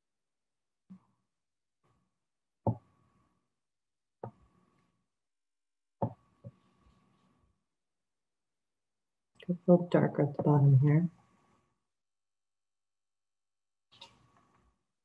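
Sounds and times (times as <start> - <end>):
colored pencil tapping on paper: 2.7 - 2.9, 4.2 - 4.4, 6.0 - 6.6.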